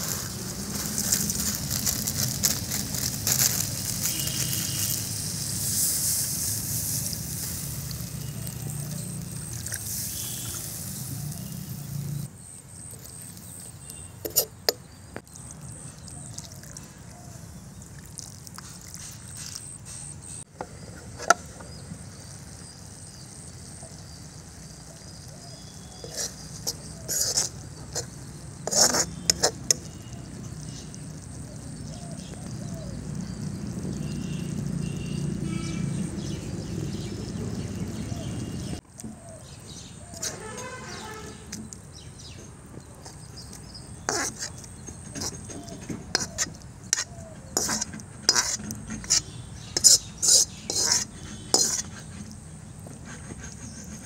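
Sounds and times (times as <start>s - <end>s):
water pouring from plastic bottle: 0.0s - 10.7s, 17.7s - 19.7s
noodles boiling: 0.0s - 12.3s, 15.3s - 20.0s, 24.0s - 38.8s
metal spoon scraping wok: 14.2s - 14.8s, 26.0s - 30.1s, 44.0s - 52.4s.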